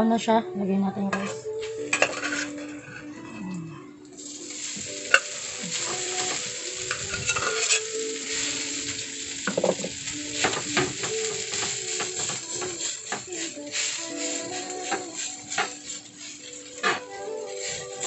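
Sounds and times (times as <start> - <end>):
rice sizzling in frying pan: 4.2 - 18.0.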